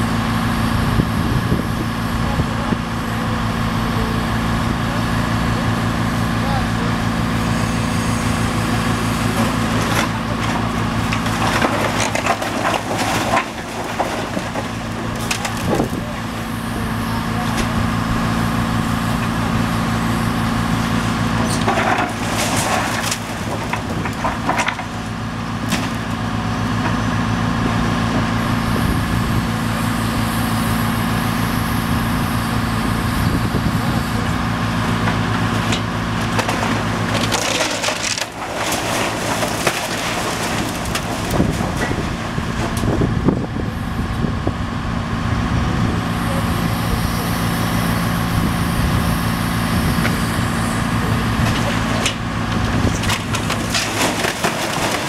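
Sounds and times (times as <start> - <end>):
diesel engine running: 0.0 - 55.0
wood cracking and splintering: 8.3 - 27.1, 34.7 - 43.5, 50.0 - 55.0.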